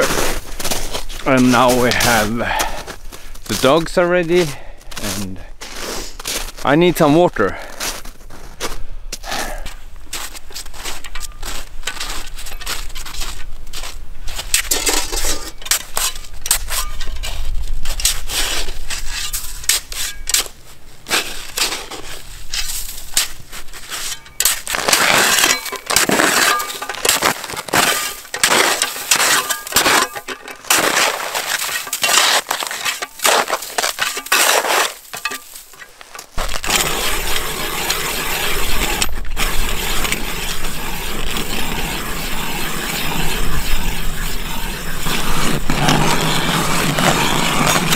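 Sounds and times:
footsteps crunching in snow: 0:00.0 - 0:47.9
shovel scraping snow: 0:00.0 - 0:47.9
ice auger grinding into ice: 0:21.1 - 0:47.9.

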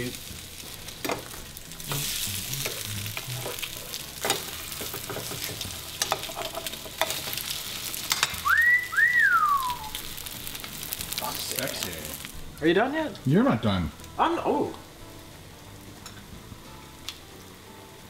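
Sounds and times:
toast sizzling in frying pan: 0:00.0 - 0:18.0
person whistling rising pitch: 0:08.4 - 0:10.0.

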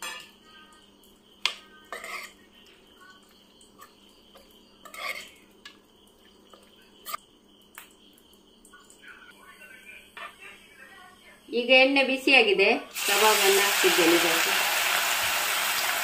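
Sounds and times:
spoon stirring in metal pot: 0:00.0 - 0:00.4, 0:01.4 - 0:07.2.

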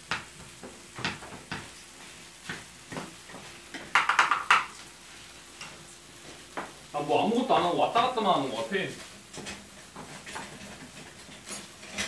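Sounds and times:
utensils scraping frying pans: 0:07.4 - 0:12.0
utensils clattering: 0:09.3 - 0:12.0.

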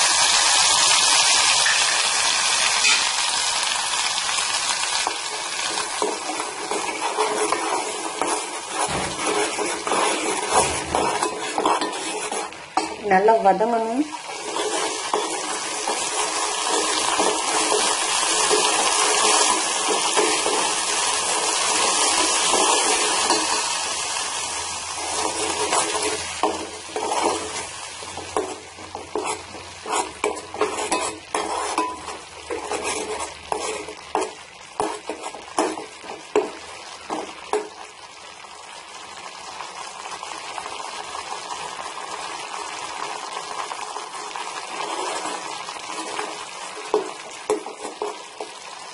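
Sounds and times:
paste sizzling in hot oil: 0:00.0 - 0:48.9
ladle clinking and scraping pan: 0:02.8 - 0:03.2, 0:05.0 - 0:13.1, 0:14.2 - 0:24.0, 0:25.0 - 0:37.8, 0:44.7 - 0:48.7.

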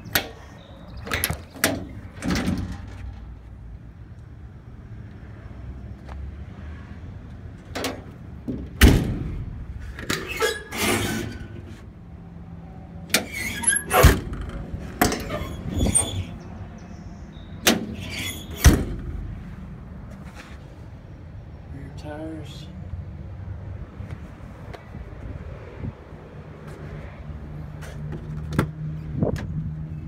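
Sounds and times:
metal doors and latches clanking: 0:00.0 - 0:03.5, 0:07.6 - 0:11.8, 0:13.0 - 0:16.6, 0:17.4 - 0:19.4.

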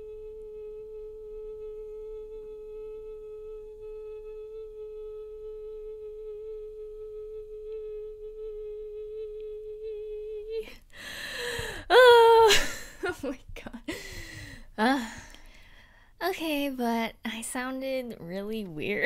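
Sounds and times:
sharp gasping breath: 0:10.6 - 0:11.9, 0:13.9 - 0:16.2
woman singing long high note: 0:11.9 - 0:12.6.

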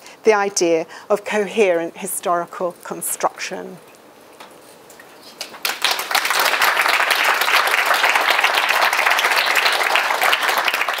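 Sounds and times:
audience applauding: 0:05.5 - 0:11.0.

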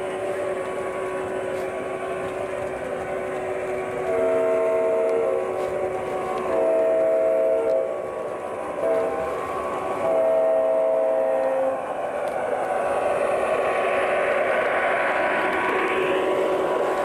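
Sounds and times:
wheels rolling on track: 0:00.0 - 0:17.0
model locomotive horn blasts: 0:03.9 - 0:05.8, 0:06.4 - 0:08.0, 0:08.8 - 0:09.4, 0:10.0 - 0:11.9.

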